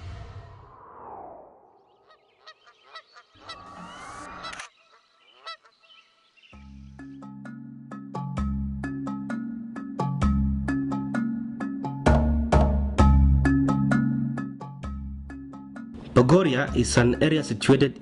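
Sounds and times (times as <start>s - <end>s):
water birds honking: 2.0s - 6.4s
music: 6.6s - 18.0s.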